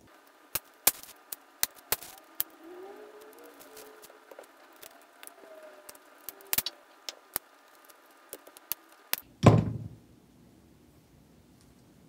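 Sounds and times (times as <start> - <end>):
heavy dull thump: 9.4 - 10.0.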